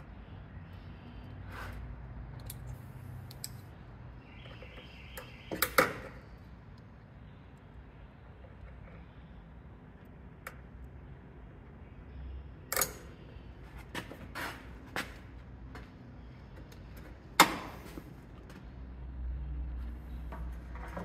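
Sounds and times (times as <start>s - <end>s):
locking pliers clicking and snapping: 2.3s - 3.7s.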